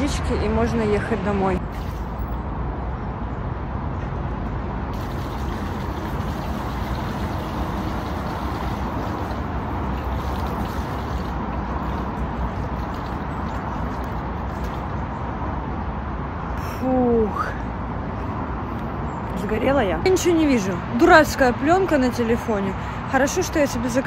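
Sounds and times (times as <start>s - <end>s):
water splashing from tap: 4.9s - 14.8s.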